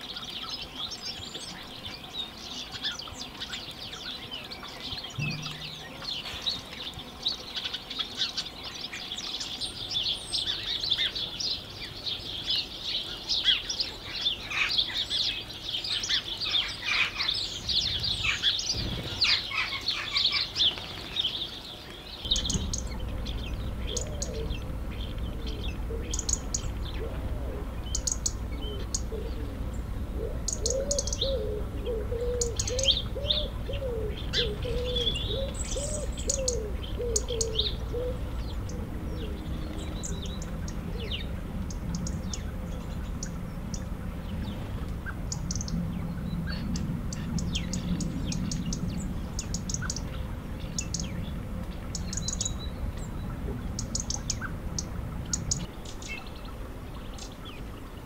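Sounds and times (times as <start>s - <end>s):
songbirds singing: 0.0s - 58.0s
sparrows chirping: 0.0s - 58.0s
steady low rumble: 5.2s - 7.3s, 22.2s - 58.0s
pigeon cooing: 22.3s - 42.0s.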